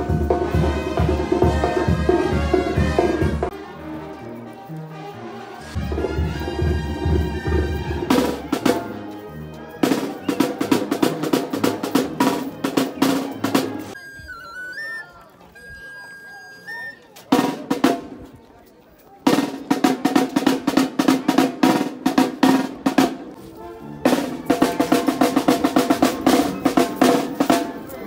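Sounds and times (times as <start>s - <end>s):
high piping melody: 13.9s - 17.2s
snare drum rolls: 19.3s - 23.4s.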